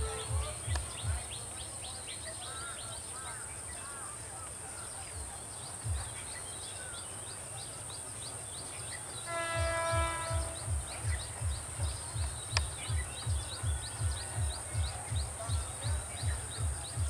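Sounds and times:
train horn blast: 0:00.0 - 0:00.8, 0:09.2 - 0:10.9
low rhythmic thumping: 0:00.0 - 0:01.6, 0:05.2 - 0:06.5, 0:09.3 - 0:17.0
small birds chirping: 0:00.0 - 0:17.0.

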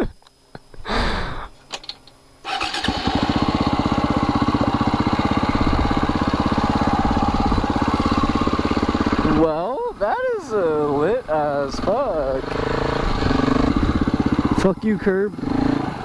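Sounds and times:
starter clicks: 0:01.6 - 0:02.9
dirt bike engine idling: 0:02.4 - 0:16.0.

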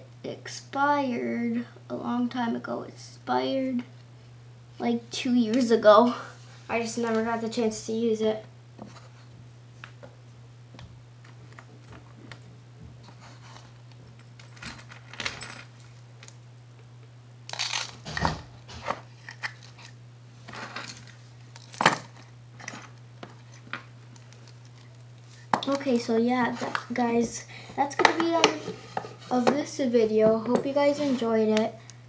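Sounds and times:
steady low hum: 0:00.0 - 0:32.0
metal chains clinking: 0:14.2 - 0:15.9.

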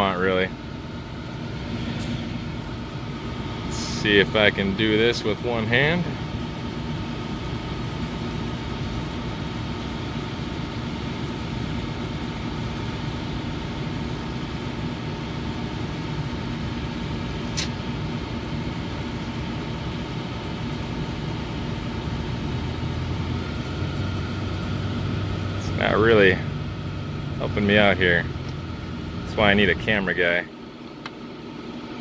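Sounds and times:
hvac equipment humming: 0:00.0 - 0:32.0
sharp click: 0:17.6 - 0:17.8.

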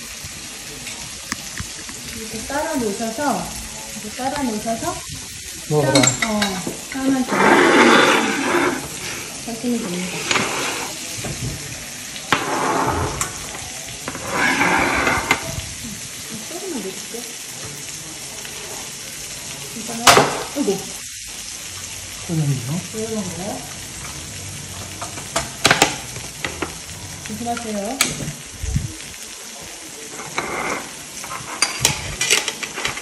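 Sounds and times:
vegetables sizzling in a frying pan: 0:00.0 - 0:33.0
utensils tapping a pan: 0:05.8 - 0:11.6, 0:12.2 - 0:15.6, 0:19.9 - 0:20.8, 0:24.8 - 0:28.4, 0:30.1 - 0:33.0.

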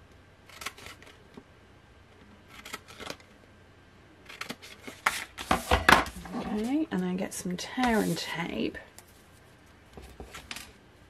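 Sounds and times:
scissors cutting paper: 0:00.5 - 0:01.2, 0:02.5 - 0:03.2, 0:04.3 - 0:05.3.

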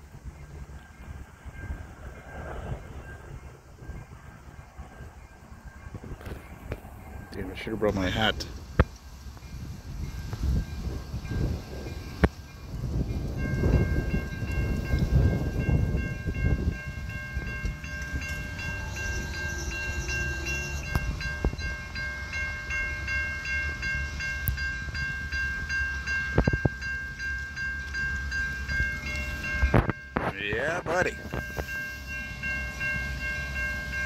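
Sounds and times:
wind buffeting microphone: 0:00.0 - 0:31.8
diesel freight train rumble: 0:00.0 - 0:34.0
level-crossing warning bell: 0:07.0 - 0:34.0.

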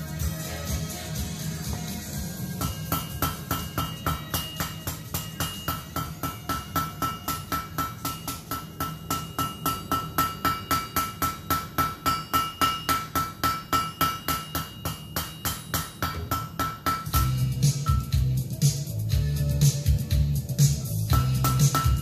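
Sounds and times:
hammer striking metal on anvil: 0:02.5 - 0:18.3, 0:21.1 - 0:22.0.

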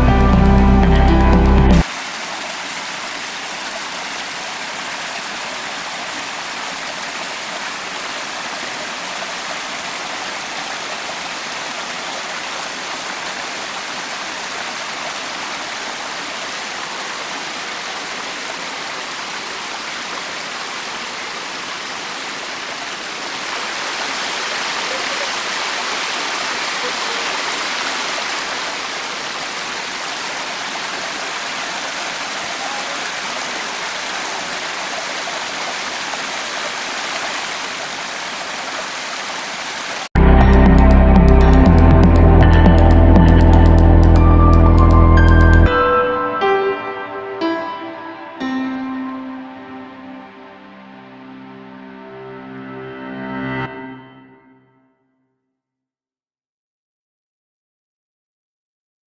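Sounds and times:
water rushing over rocks: 0:01.4 - 0:45.7.

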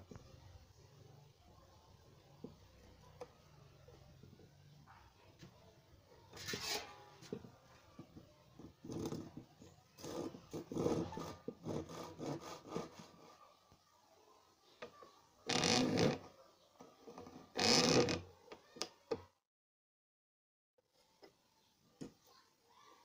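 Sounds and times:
hand saw cutting wood: 0:06.4 - 0:07.0, 0:10.0 - 0:13.3.

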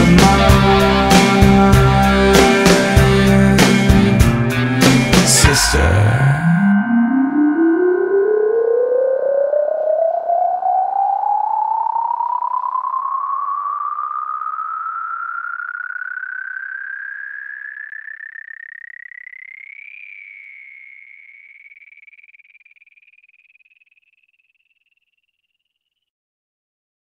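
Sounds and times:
wavering synthesizer tone rising: 0:04.6 - 0:25.7.

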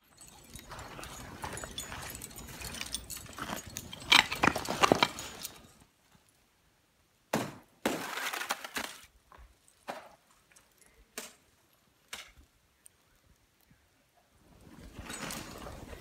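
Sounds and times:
footsteps crunching through snow: 0:00.2 - 0:05.7.

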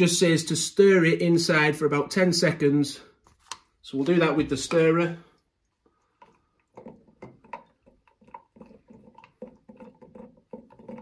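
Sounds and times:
stirrer swishing coffee: 0:05.7 - 0:11.0.

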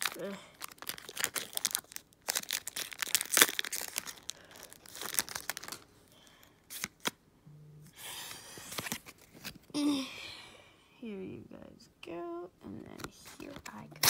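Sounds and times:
foil wrapper crinkling and tearing: 0:00.0 - 0:07.1
cards clicking and rustling: 0:06.7 - 0:07.2, 0:08.6 - 0:09.7.

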